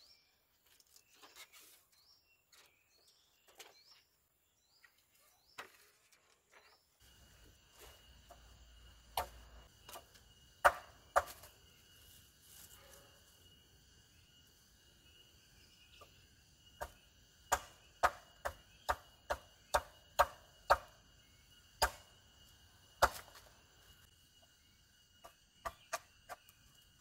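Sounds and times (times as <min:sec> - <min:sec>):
faint insect drone: 0:00.0 - 0:27.0
machete chopping wood: 0:09.1 - 0:10.0, 0:10.6 - 0:11.5, 0:16.8 - 0:20.9, 0:21.8 - 0:22.1, 0:23.0 - 0:23.4.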